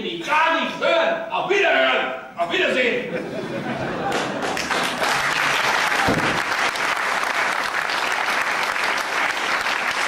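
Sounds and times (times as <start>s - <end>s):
audience applauding: 4.0s - 10.0s
door shutting with low thud: 6.0s - 6.5s.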